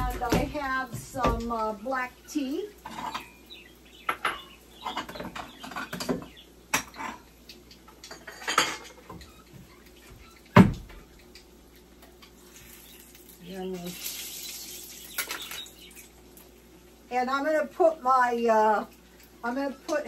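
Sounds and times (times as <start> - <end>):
dishes and cutlery clinking: 2.8 - 3.4, 4.1 - 7.3, 7.9 - 9.4.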